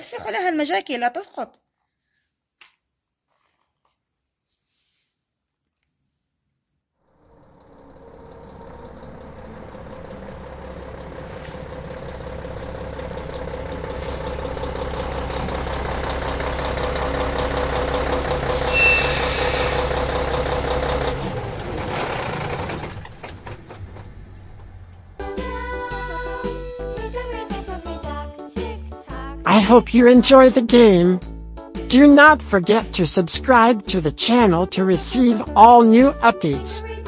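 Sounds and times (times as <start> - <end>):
truck engine running: 7.0 - 26.6
short burst of hiss: 18.6 - 20.1.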